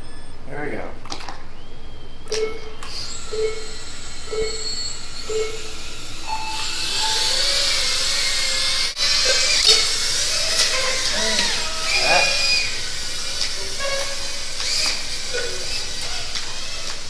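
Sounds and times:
quadcopter motors whining: 1.5s - 17.0s
short low beeps: 2.2s - 8.2s
higher start tone: 2.3s - 17.0s.

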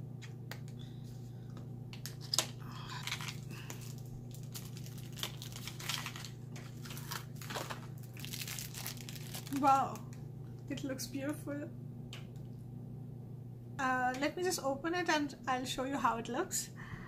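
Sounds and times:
steady low hum: 0.0s - 17.0s
packaging crinkling and rustling: 2.0s - 10.2s.

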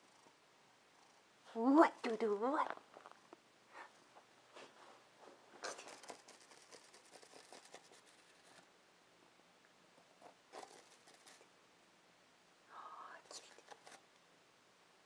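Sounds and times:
scratching on rope scratching post: 5.6s - 8.6s, 10.2s - 11.5s, 13.3s - 14.0s.

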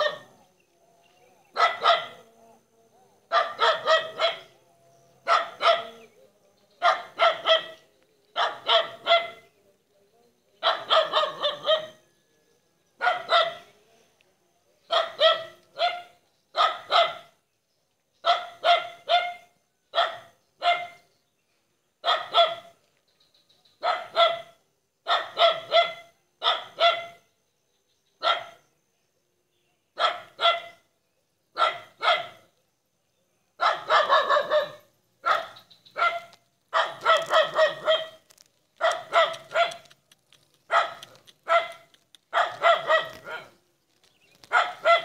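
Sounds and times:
dog barking: 0.0s - 0.3s, 1.5s - 2.3s, 3.3s - 4.6s, 5.2s - 6.1s, 6.8s - 7.8s, 8.4s - 9.5s, 10.6s - 12.0s, 13.0s - 13.7s, 14.9s - 17.4s, 18.2s - 21.0s, 22.0s - 22.8s, 23.8s - 27.2s, 28.2s - 28.6s, 30.0s - 30.9s, 31.6s - 32.5s, 33.6s - 38.2s, 38.8s - 39.9s, 40.7s - 43.6s, 44.4s - 45.0s.

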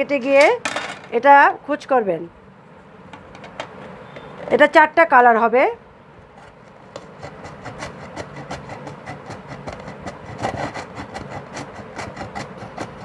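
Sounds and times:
onion rasping on a metal grater: 6.4s - 13.0s.

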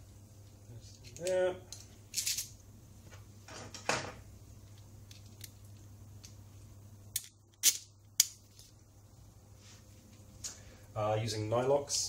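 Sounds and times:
metal parts handling clicks: 0.9s - 2.6s, 4.7s - 6.4s, 7.1s - 8.4s.

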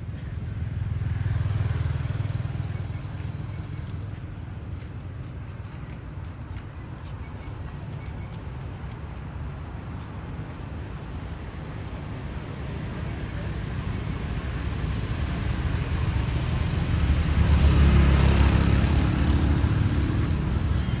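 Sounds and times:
vehicle passing: 0.0s - 4.9s, 11.4s - 21.0s.

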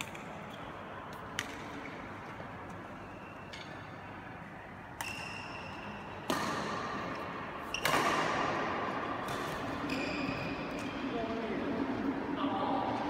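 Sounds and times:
racket hitting shuttlecock: 1.1s - 2.0s, 4.9s - 10.9s.

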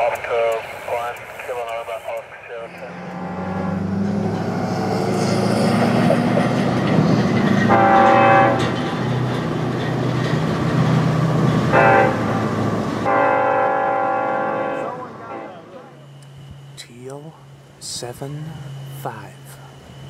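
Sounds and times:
jet passing with high whine: 0.0s - 20.0s
horn blasts: 0.9s - 6.0s, 7.5s - 8.9s, 11.7s - 16.2s.

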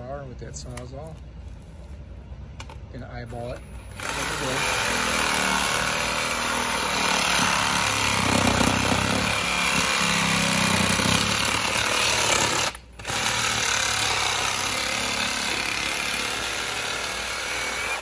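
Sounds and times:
reciprocating saw cutting pipe: 4.0s - 18.0s.

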